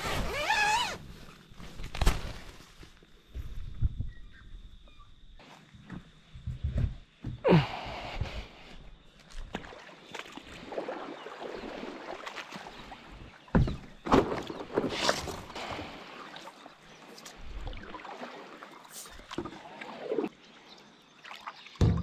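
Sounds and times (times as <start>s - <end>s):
water swishing and splashing: 9.2s - 22.0s
paddle strokes in water: 9.4s - 20.3s.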